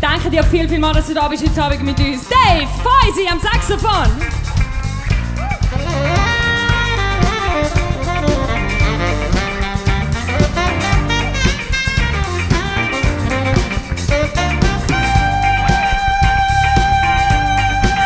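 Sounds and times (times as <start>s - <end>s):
bass: 0.0s - 18.0s
drum kit: 0.0s - 18.0s
electric guitar: 1.9s - 18.0s
tenor saxophone solo: 5.4s - 18.0s.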